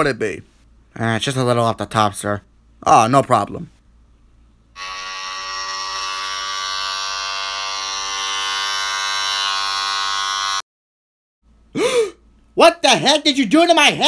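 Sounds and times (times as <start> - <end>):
electric hair clippers buzzing: 4.8 - 10.6.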